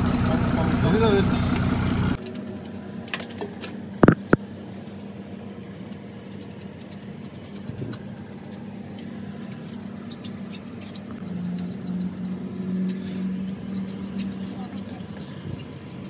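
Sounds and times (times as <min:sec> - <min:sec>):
car engine idling: 0:00.0 - 0:02.2.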